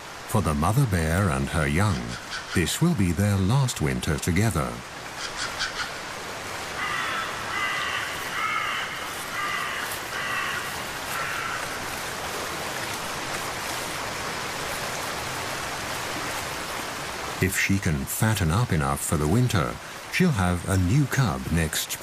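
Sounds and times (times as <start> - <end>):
flowing river water: 0.0 - 22.0
bird calling harshly: 2.0 - 2.7, 5.2 - 6.0, 6.8 - 11.7.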